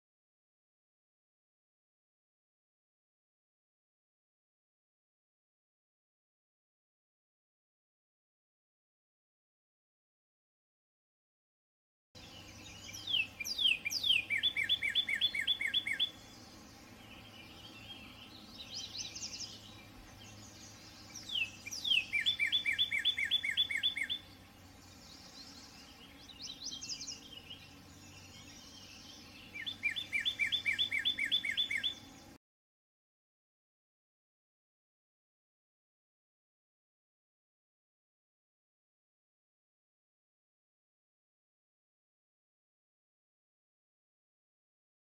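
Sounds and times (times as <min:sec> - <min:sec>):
cardinal singing whistles: 0:21.3 - 0:24.2, 0:29.7 - 0:32.0.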